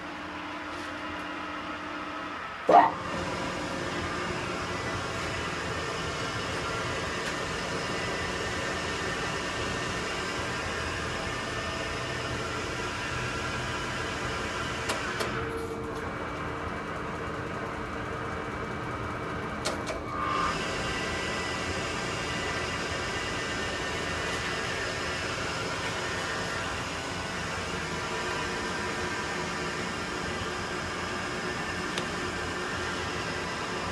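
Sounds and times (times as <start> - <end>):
lathe humming: 2.3 - 15.4, 20.2 - 33.9.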